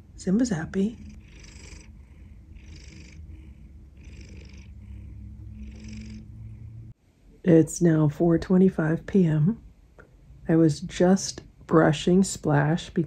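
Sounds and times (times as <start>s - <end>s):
cat purring: 0.0s - 6.9s.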